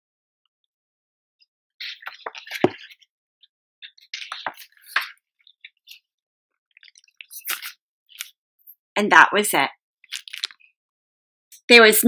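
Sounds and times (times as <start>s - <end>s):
book pages rustling: 1.8s - 3.0s, 3.8s - 6.0s, 6.8s - 8.3s.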